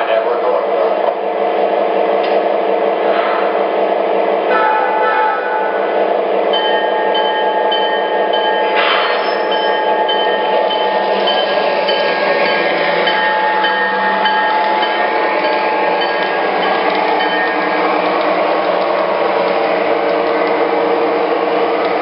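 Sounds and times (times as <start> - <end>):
model train rolling rumble: 6.5 - 22.0.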